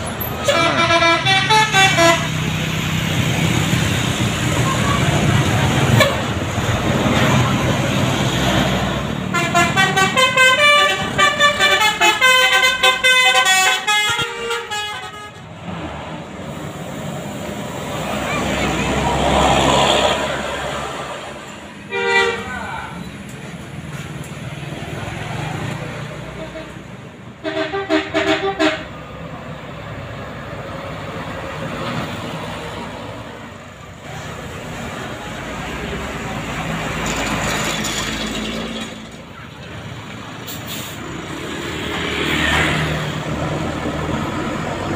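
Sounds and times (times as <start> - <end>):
bus engine passing: 0.0 - 44.9
road noise: 0.0 - 44.9
multi-tone bus horn tune: 0.2 - 2.5, 5.9 - 6.4, 9.2 - 15.6, 21.8 - 22.5, 26.2 - 29.1.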